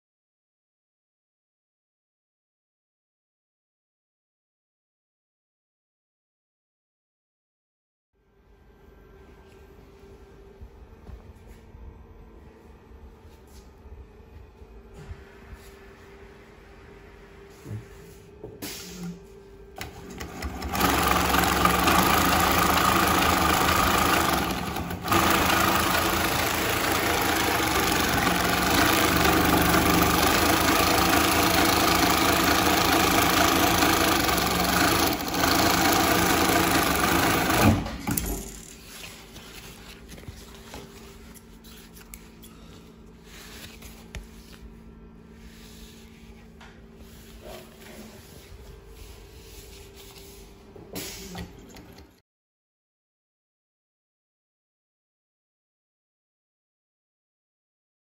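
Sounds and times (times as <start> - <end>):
industrial sewing machine running: 19.8 - 38.6.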